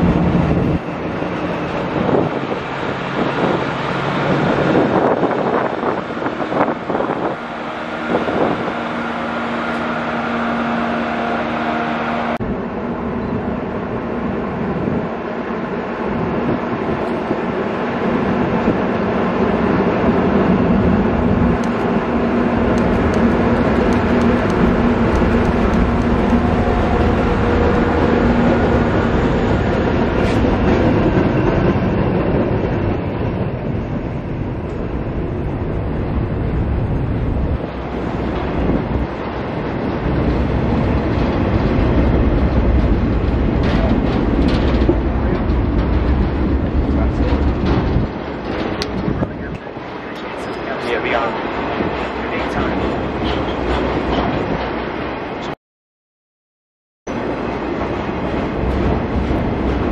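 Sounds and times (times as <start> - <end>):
diesel locomotive passing: 0.0 - 55.6, 57.1 - 59.9
flatcars rolling on track: 14.6 - 55.0, 57.1 - 59.9.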